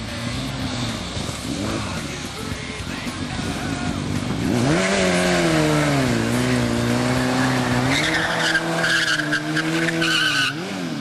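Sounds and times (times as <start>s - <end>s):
motorcycle engine at high revs: 0.0s - 11.0s
tire squealing: 4.0s - 11.0s.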